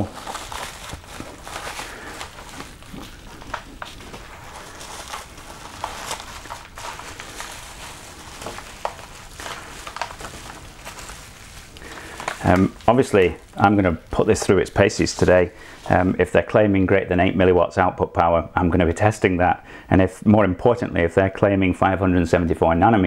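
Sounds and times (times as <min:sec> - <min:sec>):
packaging rustling and crinkling: 0:00.0 - 0:16.4.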